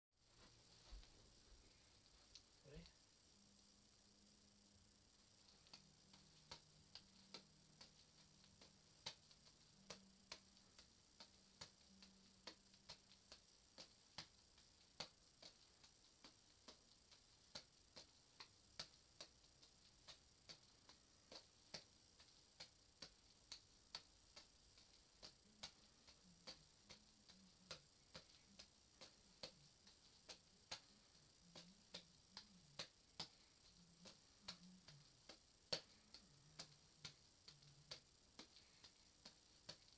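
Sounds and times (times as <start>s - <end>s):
soft clicks of juggling ball catches: 31.5s - 39.9s.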